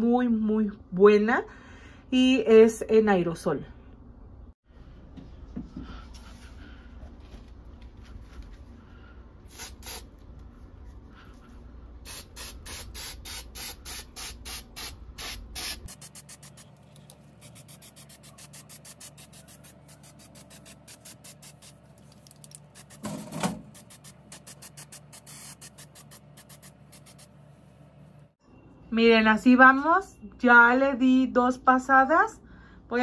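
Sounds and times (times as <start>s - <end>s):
spray can hissing bursts: 9.5s - 10.1s, 12.0s - 16.7s, 17.4s - 21.8s, 22.5s - 27.3s.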